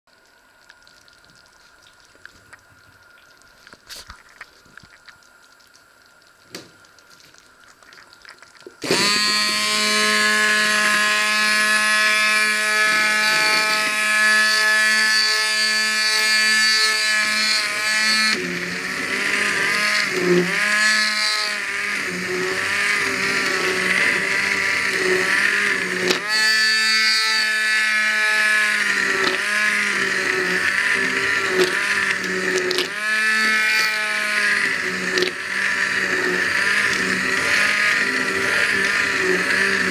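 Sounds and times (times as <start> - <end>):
immersion blender motor running: 8.8 - 39.9.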